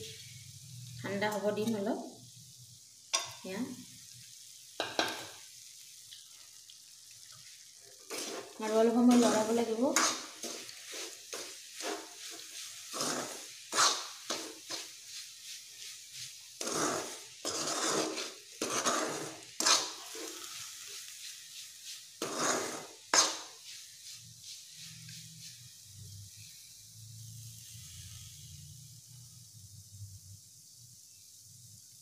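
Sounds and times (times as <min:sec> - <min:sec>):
spatula scraping and stirring: 0:07.3 - 0:26.4.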